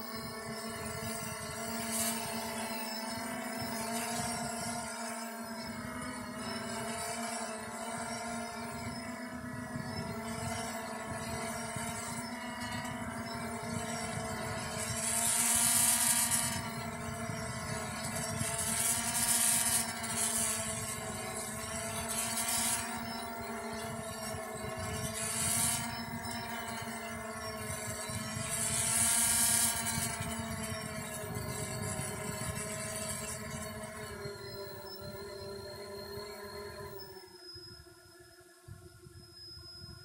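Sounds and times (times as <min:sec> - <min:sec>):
drone motors humming: 0:00.0 - 0:40.0.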